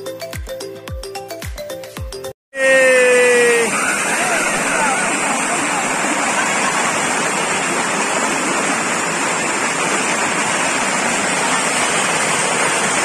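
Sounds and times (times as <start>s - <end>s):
waterfall rushing: 2.6s - 13.0s.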